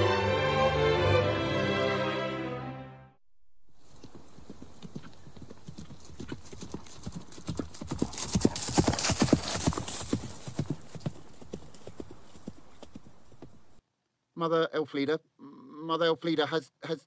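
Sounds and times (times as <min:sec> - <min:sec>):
horse hooves clip-clopping: 0:03.8 - 0:13.8.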